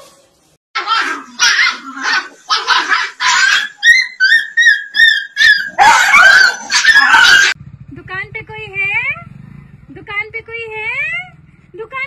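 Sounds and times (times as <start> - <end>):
dog yelping: 0.8 - 7.6
dogs barking and snarling: 0.8 - 7.6.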